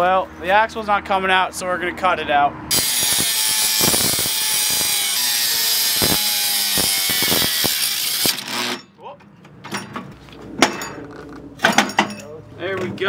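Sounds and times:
angle grinder cutting metal: 2.7s - 8.9s.

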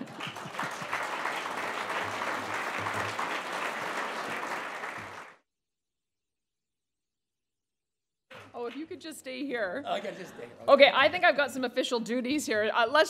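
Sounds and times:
audience applauding: 0.0s - 5.4s.

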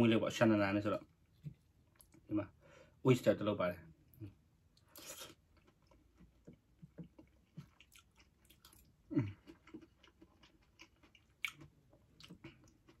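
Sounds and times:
person chewing food: 4.7s - 13.0s.

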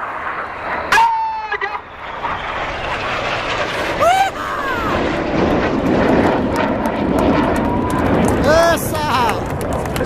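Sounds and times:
jets roaring past: 0.0s - 10.0s
rising and falling vocal call: 3.8s - 5.3s.

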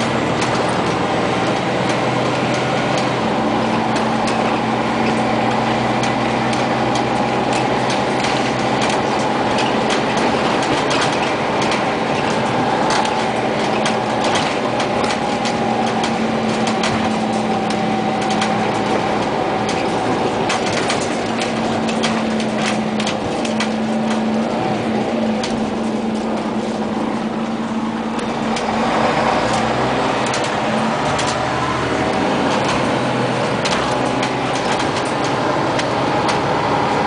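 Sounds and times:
bus drivetrain hum and whine: 0.0s - 37.0s
rattles and clicks from bus body: 0.0s - 37.0s
road noise: 0.0s - 37.0s.

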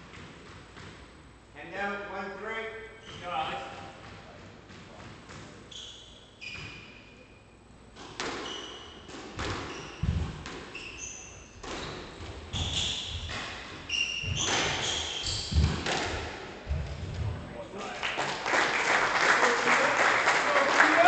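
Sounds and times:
squash ball hitting rackets and walls: 0.0s - 1.2s, 3.0s - 7.0s, 7.8s - 17.5s
shoes squeaking on wooden floor: 8.4s - 15.9s.

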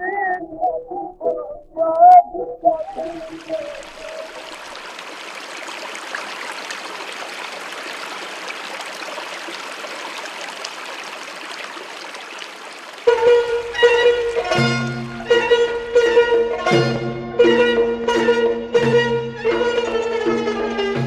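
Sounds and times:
water rushing over rocks: 2.8s - 16.0s
music: 13.1s - 21.0s.

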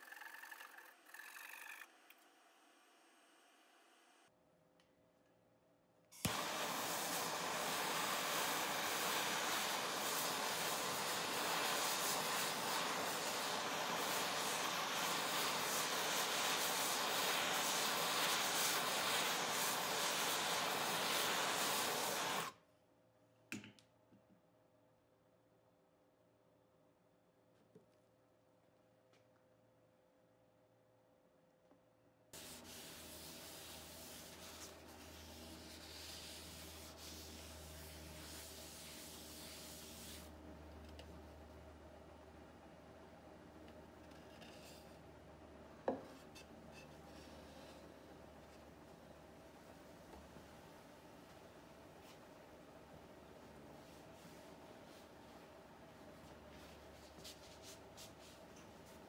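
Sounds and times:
gas torch hissing: 6.2s - 22.6s
paper towel rubbing wood: 32.4s - 40.3s.

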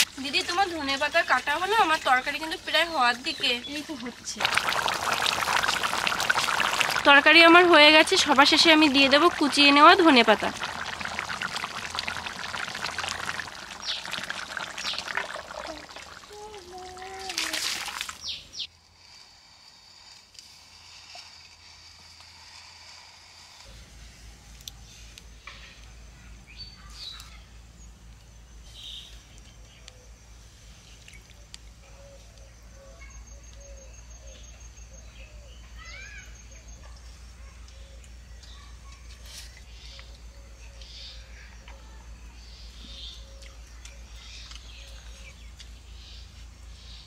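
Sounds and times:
birds chirping: 3.0s - 18.7s
curry pouring and splashing: 4.3s - 18.5s
birds rising calls: 10.5s - 16.3s.

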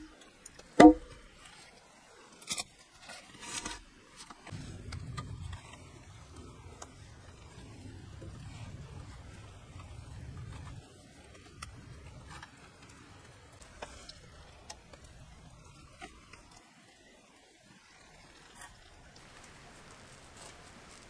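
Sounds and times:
light rain patter: 0.0s - 21.0s
low rumbling: 4.5s - 10.9s.

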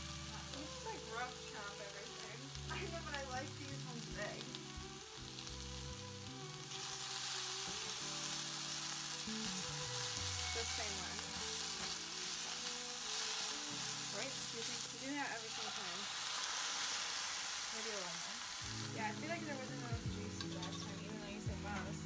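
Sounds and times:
vegetables sizzling in a pan: 0.0s - 22.0s
spatula stirring: 20.1s - 21.0s.

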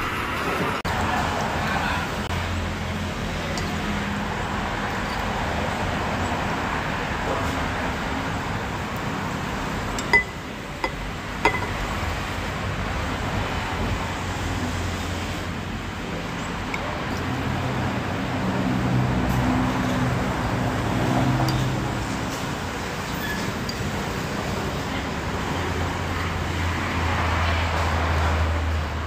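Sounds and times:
traffic noise: 0.0s - 29.0s
spoon clinking on ceramic bowl: 10.0s - 11.8s.

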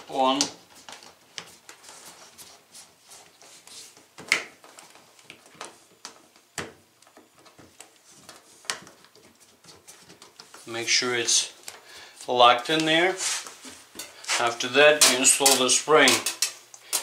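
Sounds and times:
rubber rubbing: 0.6s - 5.2s.

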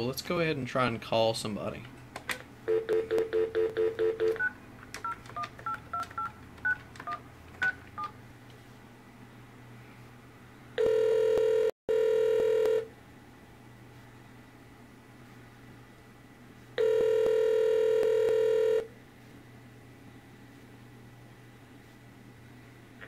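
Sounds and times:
phone ringback tone: 2.7s - 4.5s, 10.8s - 12.9s, 16.8s - 18.9s
pulsing dial tone: 10.8s - 12.9s, 16.8s - 18.9s.

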